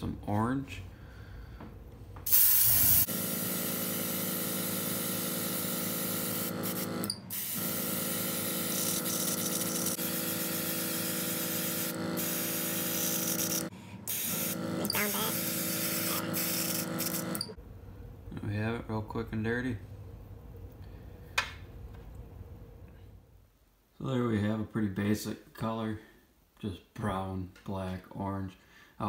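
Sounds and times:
airbrush hissing: 2.3 - 17.4.

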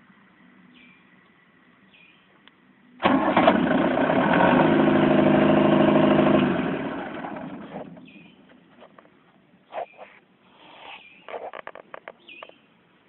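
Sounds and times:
diesel generator engine running: 0.0 - 8.5.

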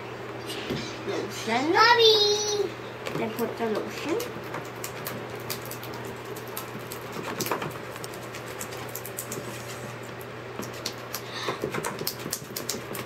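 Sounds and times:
low steady hum: 0.0 - 13.0
hands squeezing slime: 4.6 - 9.9, 10.6 - 13.0.

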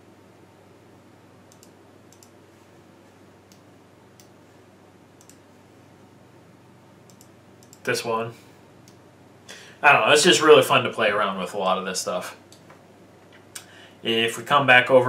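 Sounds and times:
low steady hum: 0.0 - 15.0
computer mouse clicks: 1.5 - 2.4, 5.2 - 5.4, 7.1 - 7.9.

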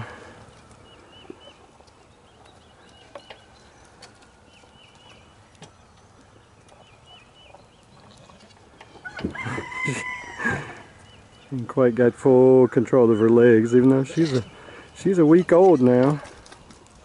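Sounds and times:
rooster crowing: 9.0 - 10.8.

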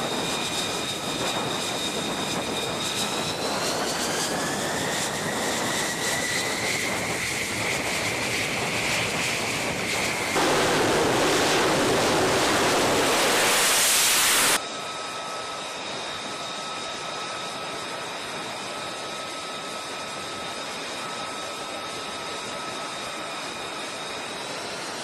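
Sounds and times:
jet engine roar and whine: 0.0 - 25.0.

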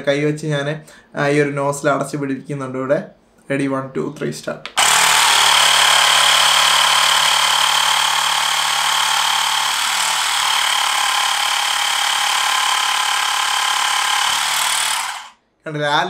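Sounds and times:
air compressor buzzing: 4.8 - 15.4.

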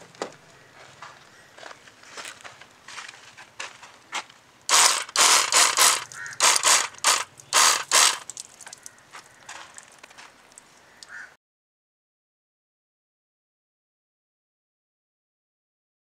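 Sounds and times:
liquid sprayer hissing bursts: 4.7 - 8.4.

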